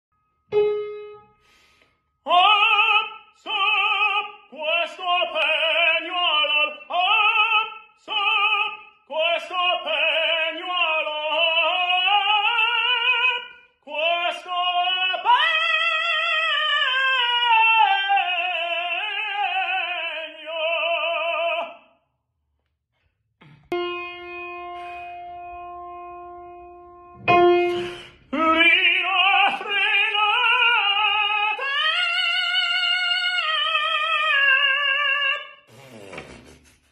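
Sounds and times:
piano notes: 0.5s - 1.6s, 23.7s - 29.4s
man singing operatic tenor: 2.3s - 21.9s, 28.3s - 35.7s.

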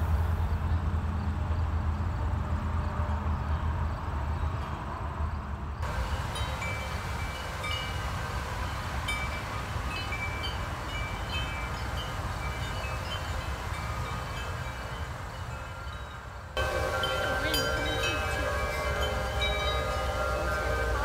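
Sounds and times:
metal wind chimes ringing: 5.8s - 21.0s.

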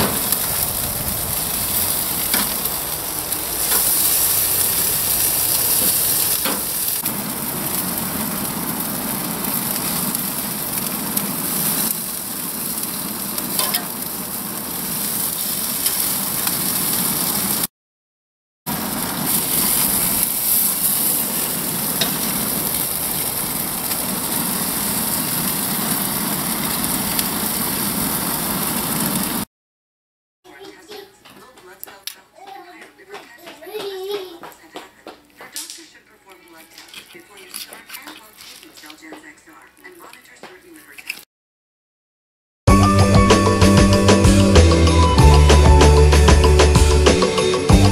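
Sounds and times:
food sizzling on a grill: 0.0s - 17.7s, 18.7s - 29.5s.

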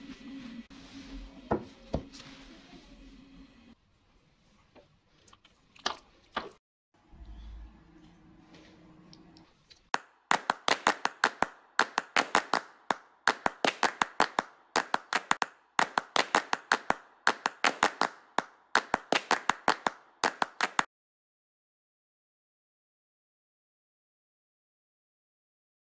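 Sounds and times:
sharp claps: 9.9s - 20.9s.

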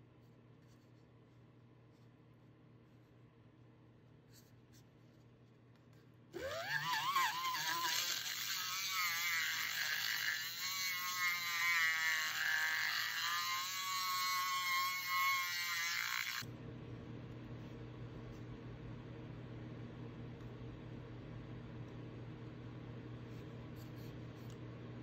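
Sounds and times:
electric mixer motor whine: 6.4s - 11.6s.

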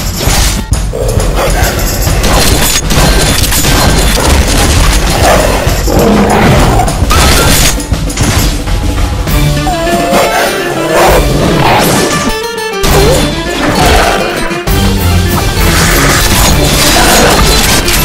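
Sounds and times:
action music: 0.0s - 18.0s
monsters snarling: 4.2s - 7.0s, 10.0s - 12.2s, 15.6s - 17.9s.

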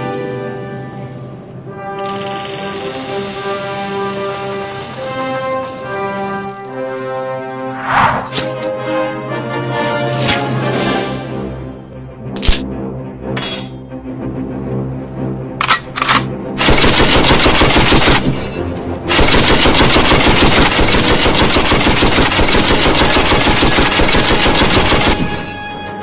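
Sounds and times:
background music: 0.0s - 26.0s
machine-gun fire: 16.6s - 18.4s, 19.1s - 25.4s.

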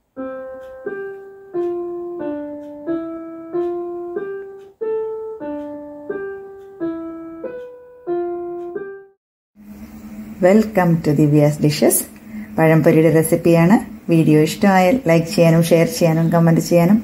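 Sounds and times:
slow piano-like melody: 0.0s - 10.3s.

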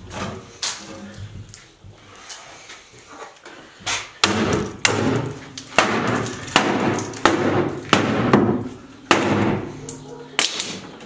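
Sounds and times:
hammer striking wood: 4.2s - 9.7s.

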